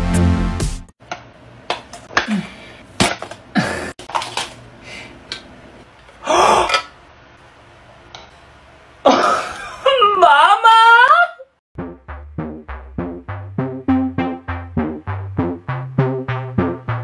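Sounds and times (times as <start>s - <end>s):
man gasping loudly: 2.2s - 2.8s.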